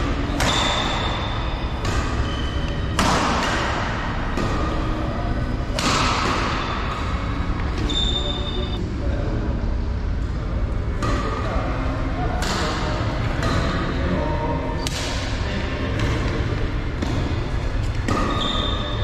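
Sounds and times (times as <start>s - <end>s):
racket striking shuttlecock: 0.0s - 4.9s, 5.6s - 7.8s, 17.0s - 18.9s
shoes squeaking on court floor: 2.0s - 3.0s, 7.8s - 8.8s, 18.2s - 19.0s.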